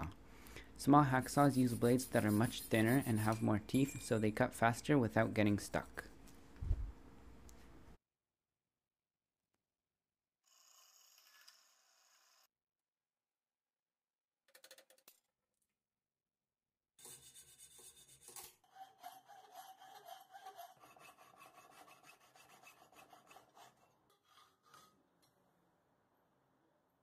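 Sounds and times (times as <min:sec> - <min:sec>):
hacksaw sawing metal: 0:01.4 - 0:04.2, 0:17.0 - 0:25.0.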